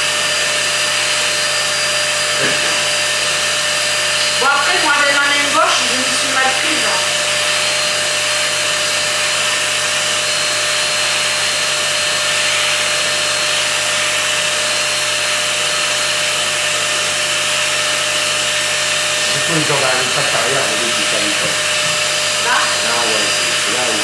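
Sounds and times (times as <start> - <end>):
vacuum motor whine: 0.0 - 24.0.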